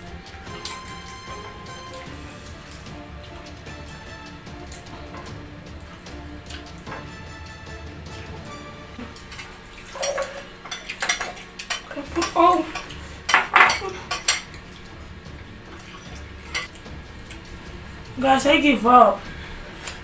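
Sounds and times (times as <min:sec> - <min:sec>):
plates glasses and bottles clinking: 0:08.1 - 0:14.6.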